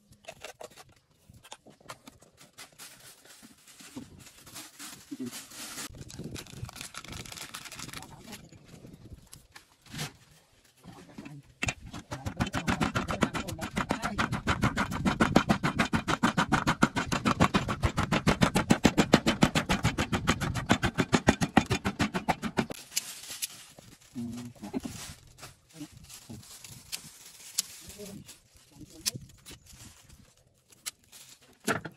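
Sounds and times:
pestle pounding in wooden mortar: 11.6s - 22.8s.

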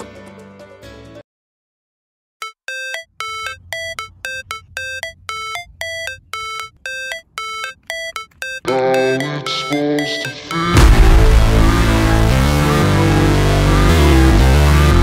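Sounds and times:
chime-like synth melody: 2.4s - 11.2s.

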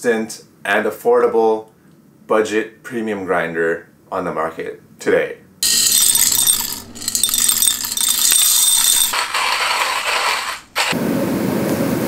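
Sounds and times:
coffee beans crunching in grinder: 5.6s - 11.0s.

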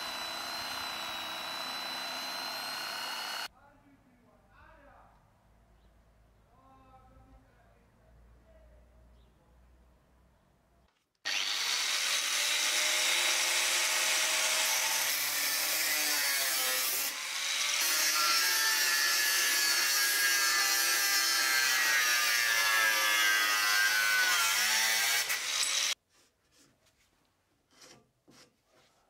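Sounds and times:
angle grinder cutting metal: 0.0s - 3.5s, 11.3s - 26.0s
grinder motor whine: 0.0s - 3.5s.

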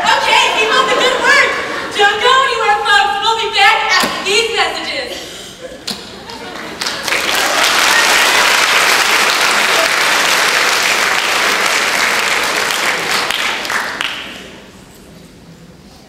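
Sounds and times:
audience applauding: 6.3s - 14.5s.

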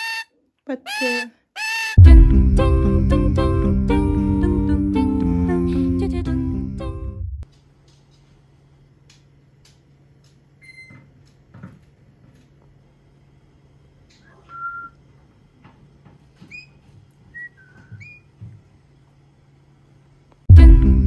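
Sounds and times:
parrot whistling: 0.0s - 0.3s, 14.2s - 15.0s, 17.3s - 18.2s
low steady hum: 2.0s - 7.5s, 19.4s - 21.0s.

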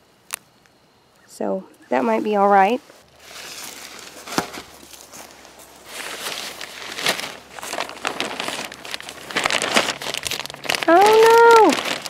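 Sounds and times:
footsteps on dry grass: 1.9s - 12.0s
plastic cover crinkling: 3.0s - 12.0s.

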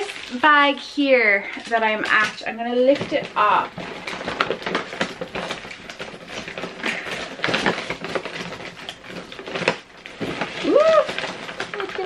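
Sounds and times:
plastic bag rustling: 0.0s - 12.0s.

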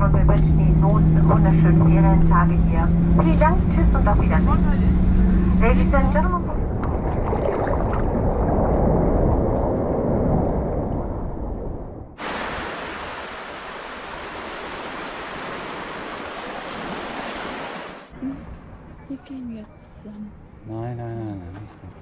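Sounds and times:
sea water sloshing around camera: 6.6s - 12.7s
small waves breaking on beach: 12.2s - 18.1s.

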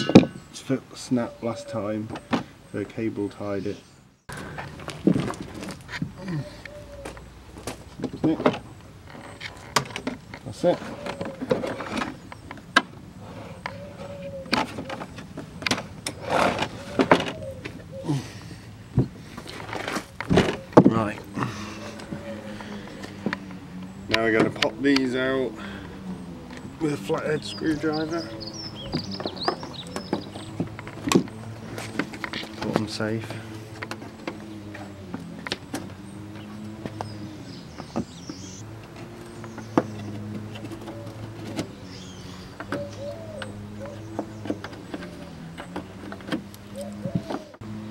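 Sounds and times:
plastic tray scraping: 13.2s - 17.4s.

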